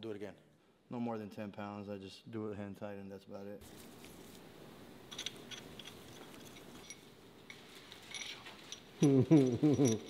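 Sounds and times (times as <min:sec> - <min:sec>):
metal bolts clinking: 0:05.0 - 0:10.0.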